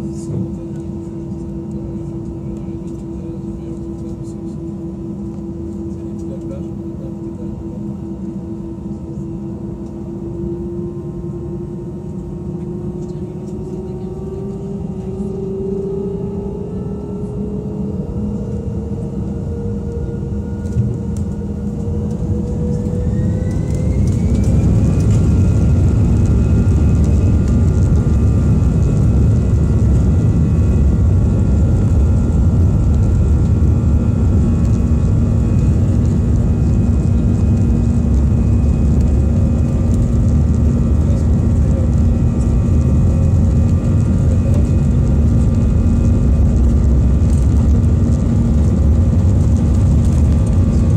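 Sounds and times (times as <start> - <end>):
jet engines spooling up: 19.4 - 50.9.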